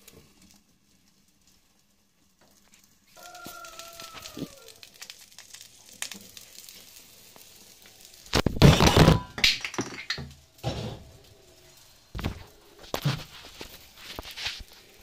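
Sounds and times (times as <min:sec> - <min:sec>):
omelette sizzling: 0:00.0 - 0:15.0
pan and lid clatter: 0:08.4 - 0:11.1.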